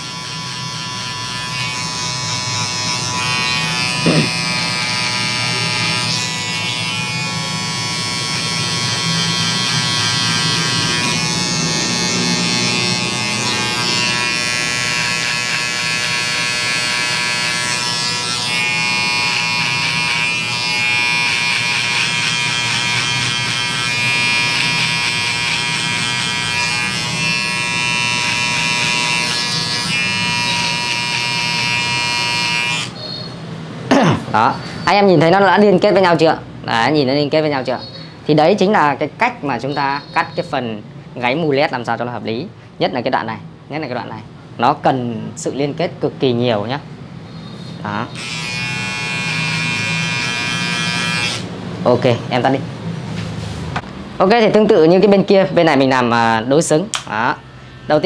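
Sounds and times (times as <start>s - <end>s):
electric hair trimmer buzzing: 0.0s - 33.1s, 47.9s - 51.6s, 55.9s - 58.0s.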